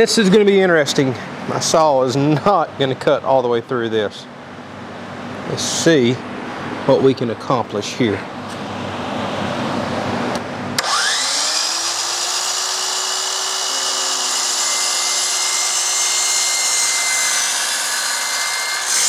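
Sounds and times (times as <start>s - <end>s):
miter saw motor whine: 10.8s - 19.0s
saw blade cutting plastic: 10.8s - 19.0s.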